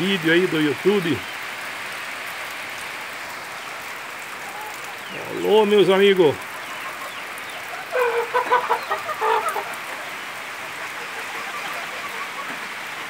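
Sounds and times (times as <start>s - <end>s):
rain falling: 0.0s - 13.0s
chickens clucking: 2.8s - 13.0s.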